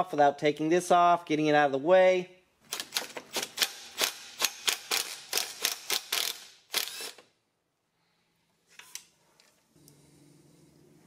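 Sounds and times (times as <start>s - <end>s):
cordless drill clicking: 4.0s - 7.3s.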